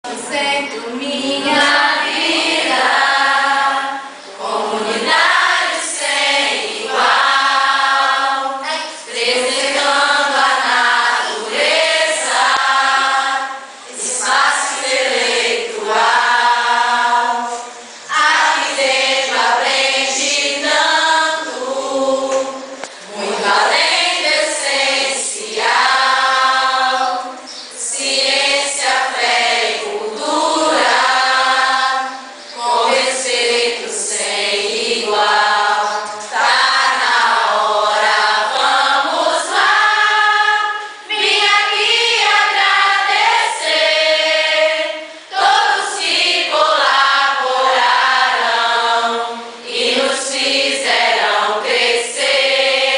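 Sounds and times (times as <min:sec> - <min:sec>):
choir singing: 0:00.1 - 0:52.9.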